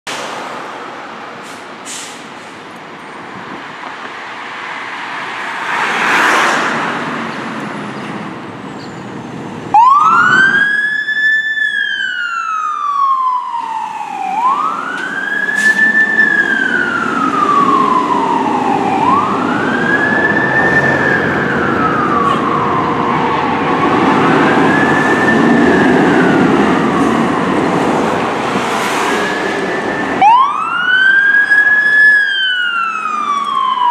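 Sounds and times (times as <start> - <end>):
street traffic noise: 0.1 - 33.9
vehicle passing: 4.4 - 8.4, 16.4 - 31.0
fire engine siren wailing: 9.7 - 33.9.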